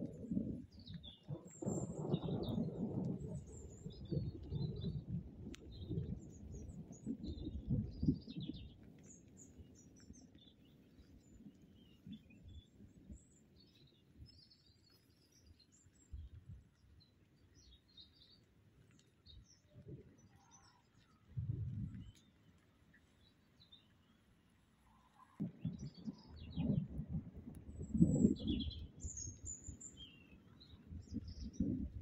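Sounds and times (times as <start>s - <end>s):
small birds chirping: 0.0s - 32.0s
thunder rumbling: 1.3s - 8.3s, 25.4s - 29.7s.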